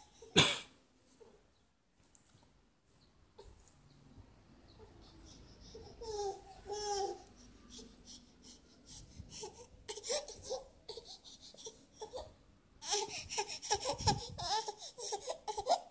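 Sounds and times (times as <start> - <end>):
baby babbling: 4.8 - 8.6, 9.4 - 15.9.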